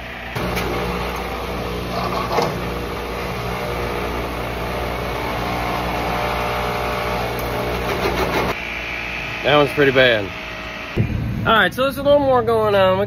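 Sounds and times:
electric motor whirring hum: 0.0s - 11.4s.

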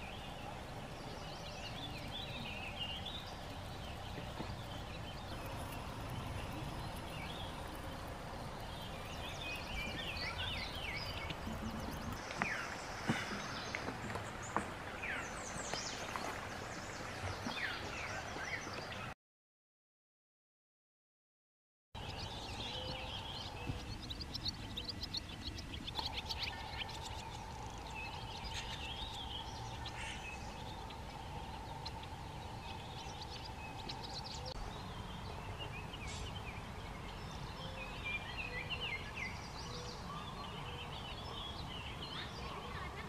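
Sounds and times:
low rumbling background: 0.0s - 12.2s, 22.0s - 42.5s
birds chirping: 0.0s - 19.2s, 22.0s - 43.0s.

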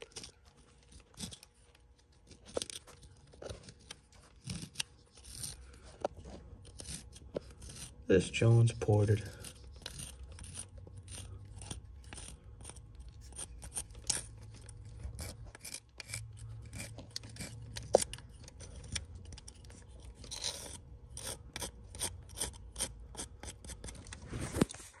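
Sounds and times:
metal tool scraping deposits: 4.4s - 23.9s.

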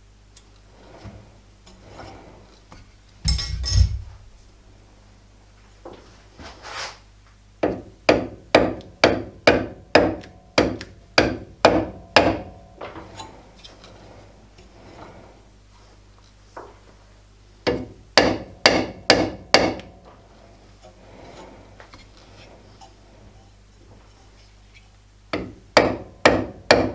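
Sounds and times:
hammer knocking on metal: 7.6s - 12.5s, 17.7s - 19.8s, 25.4s - 26.9s.

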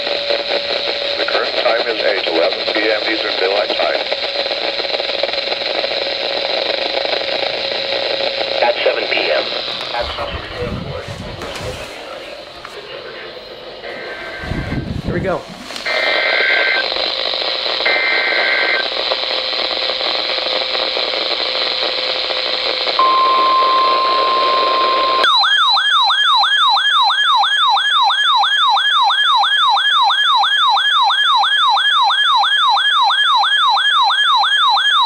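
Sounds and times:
radio static: 0.0s - 25.3s
warbling data tones: 11.9s - 27.1s
falling warble alarm: 15.8s - 18.9s, 23.0s - 35.0s.

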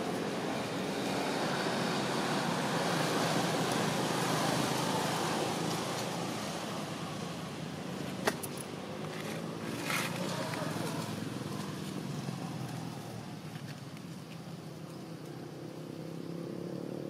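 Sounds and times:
passing vehicle rushing: 0.0s - 13.4s.

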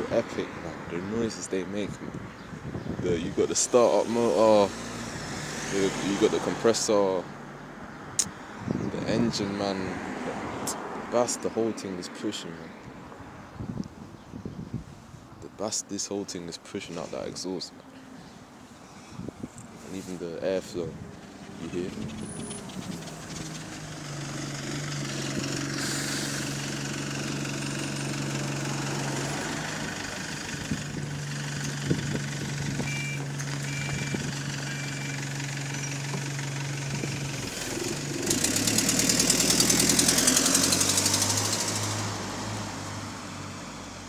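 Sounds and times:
diesel bus engine: 0.0s - 9.9s, 19.2s - 44.0s
exhaust rattling buzz: 20.0s - 43.0s.

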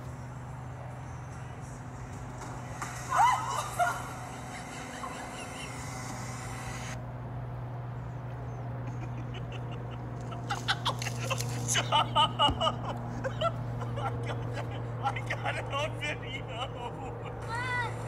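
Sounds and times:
steady low hum: 0.0s - 18.0s
video soundtrack through laptop speakers: 0.9s - 7.0s.

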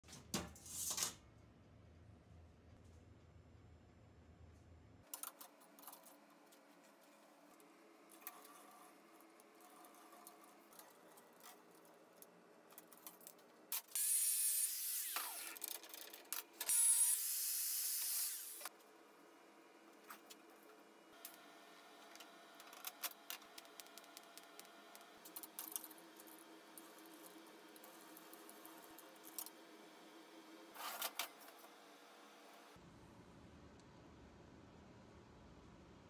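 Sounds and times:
power tool high-pitched hissing: 13.9s - 15.5s, 16.7s - 18.7s.

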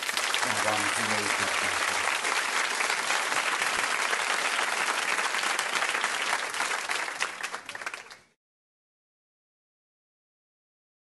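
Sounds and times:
many hands clapping: 0.0s - 8.4s.

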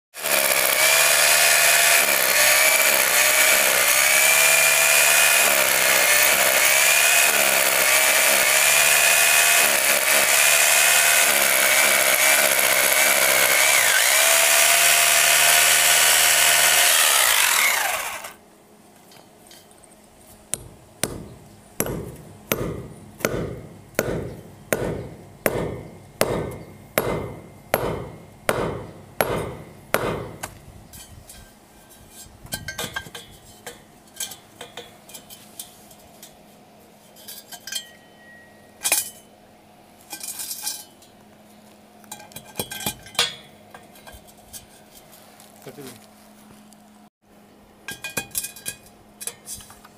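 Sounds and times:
hammer drill boring into concrete: 0.2s - 18.4s
hammer striking steel rods: 20.5s - 30.5s.

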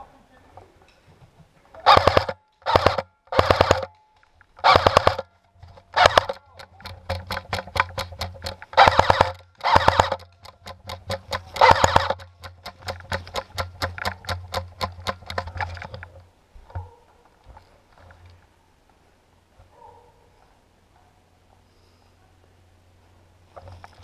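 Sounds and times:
airsoft guns firing: 1.8s - 4.0s, 4.6s - 16.0s.

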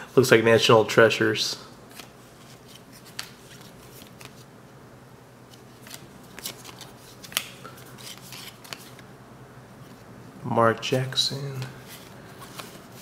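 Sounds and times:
cards flipped papery swishes: 1.9s - 4.5s, 5.5s - 9.0s, 11.6s - 13.0s.

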